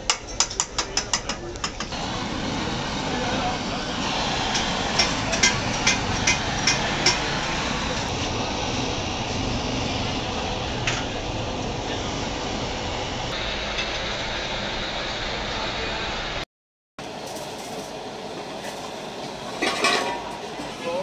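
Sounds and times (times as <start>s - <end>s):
gas torch hissing: 1.1s - 16.4s.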